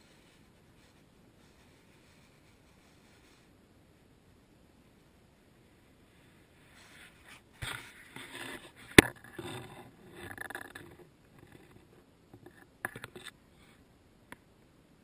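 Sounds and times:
rustling and scraping on camera housing: 0:06.7 - 0:13.8.

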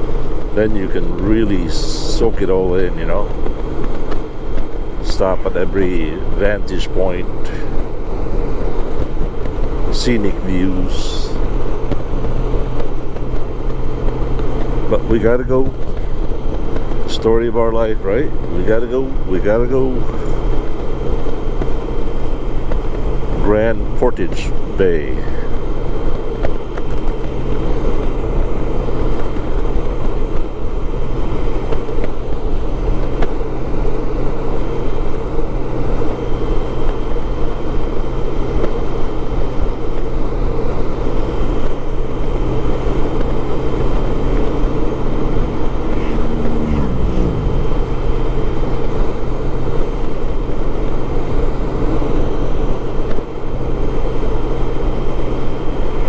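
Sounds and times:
motorcycle engine hum: 0:00.0 - 0:56.0
wind rush: 0:42.2 - 0:53.8
tone falling in pitch: 0:45.1 - 0:48.4.

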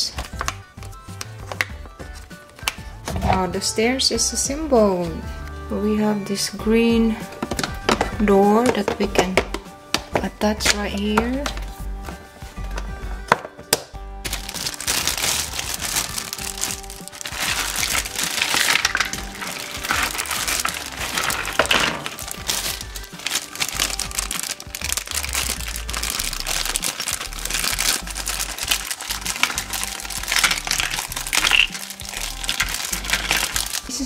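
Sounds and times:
background music: 0:00.0 - 0:34.0
plastic bags crinkling: 0:14.2 - 0:34.0.

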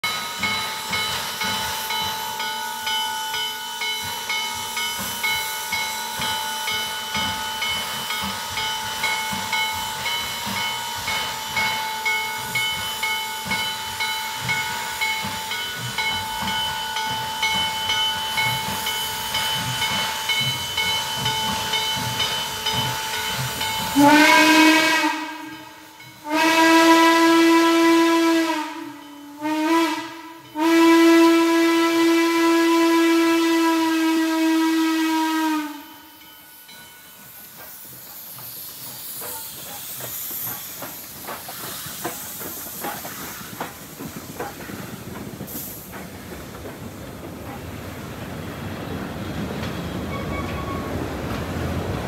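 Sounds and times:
train chime whistle blasts: 0:00.0 - 0:38.0, 0:49.8 - 0:51.2
steam hiss: 0:00.0 - 0:52.0
steam locomotive exhaust chuff: 0:00.0 - 0:52.0.

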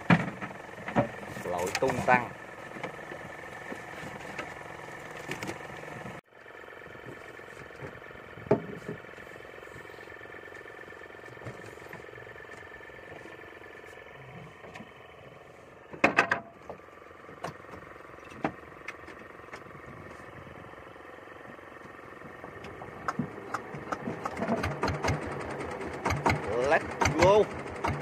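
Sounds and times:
small boat engine running: 0:00.0 - 0:28.0
knocks and clicks: 0:22.6 - 0:25.2.

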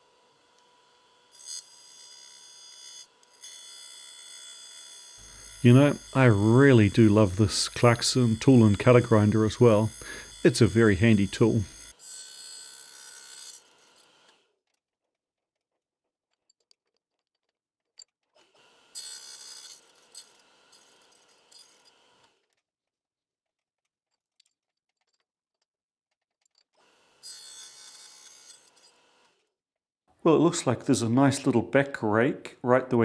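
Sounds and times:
grinding wheel grinding steel: 0:00.0 - 0:14.4, 0:18.4 - 0:22.3, 0:26.5 - 0:29.4.

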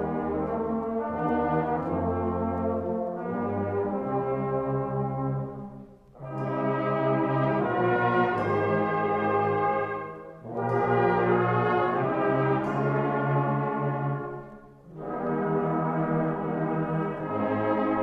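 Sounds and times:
brass band playing chords: 0:00.0 - 0:18.0.

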